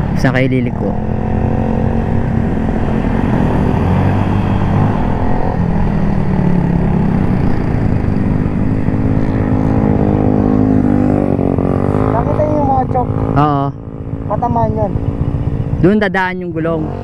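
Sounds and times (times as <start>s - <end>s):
scooter engine running: 0.0s - 17.0s.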